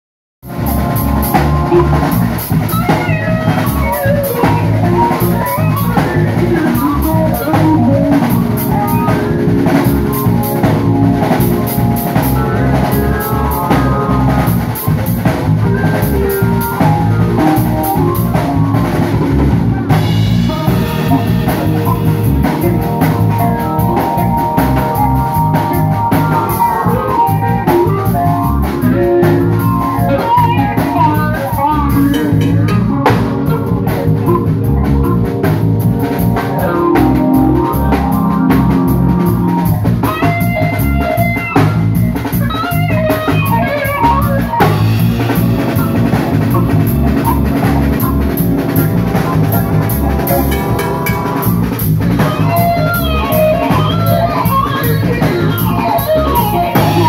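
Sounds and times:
live band playing instrumental: 0.4 - 57.0
steel guitar sliding notes: 15.5 - 57.0.

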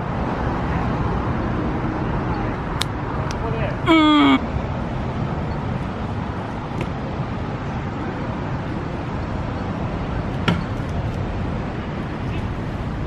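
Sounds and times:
road traffic noise: 0.0 - 13.0.

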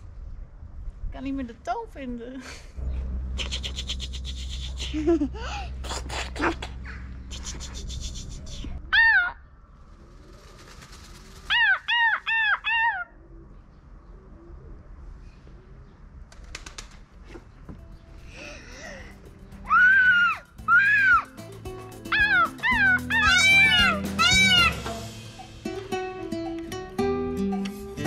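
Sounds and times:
peacock calling: 3.4 - 4.9, 10.3 - 13.4, 19.6 - 21.4, 22.0 - 25.7.

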